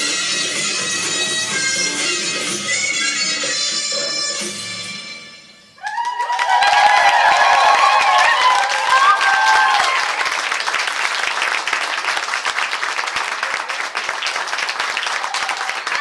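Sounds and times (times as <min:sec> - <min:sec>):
audience applauding: 0:05.8 - 0:16.0.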